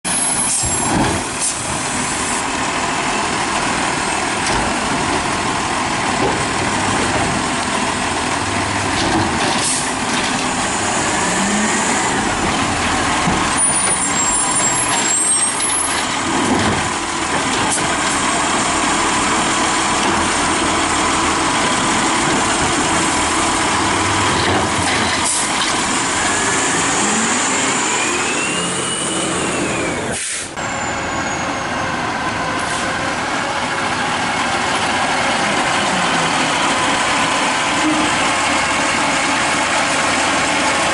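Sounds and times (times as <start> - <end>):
garbage truck diesel engine revving: 0.1 - 40.9
air brake hisses: 27.7 - 30.6.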